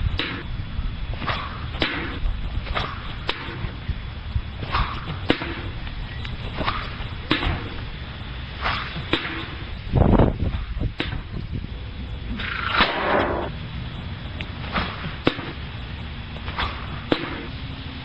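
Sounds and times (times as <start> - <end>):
sharp crack: 0.2 - 0.5, 1.2 - 3.6, 4.6 - 5.8, 6.6 - 7.8, 8.6 - 9.7, 11.0 - 11.3, 12.3 - 13.6, 14.4 - 15.7, 16.4 - 17.6
swishes through the air: 1.1 - 3.8, 8.5 - 11.1.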